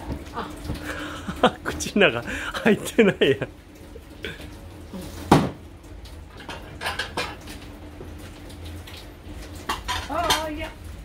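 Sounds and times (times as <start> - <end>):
dishes and cutlery clinking: 6.4 - 7.5, 9.6 - 10.6.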